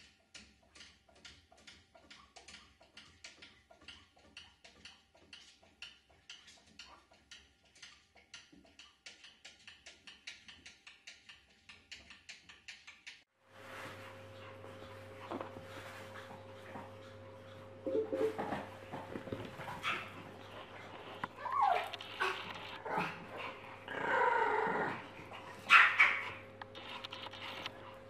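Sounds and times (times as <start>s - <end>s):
faint regular clicking: 0.0s - 13.3s, 20.9s - 22.8s, 26.5s - 28.0s
low hum: 13.6s - 28.0s.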